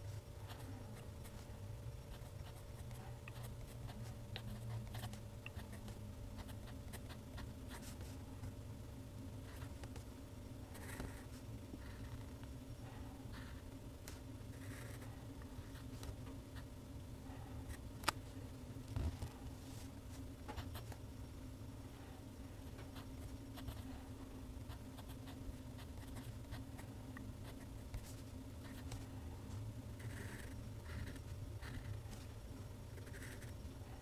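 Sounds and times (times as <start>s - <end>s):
steady low hum: 0.0s - 34.0s
pen nib scratching paper: 30.0s - 32.1s, 32.9s - 33.6s.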